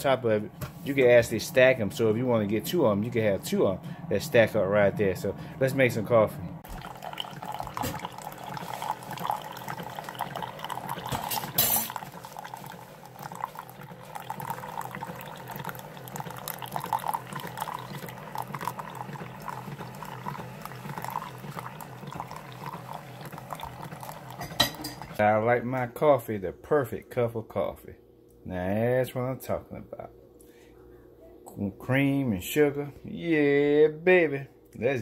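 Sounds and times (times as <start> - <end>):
coffee maker loud burst: 6.6 - 25.2
coffee stream running into mug: 6.6 - 25.2.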